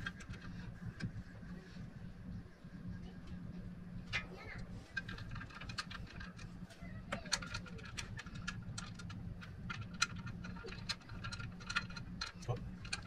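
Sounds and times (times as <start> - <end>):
steady low hum: 0.0 - 13.0
light clicks and taps on metal: 4.0 - 13.0.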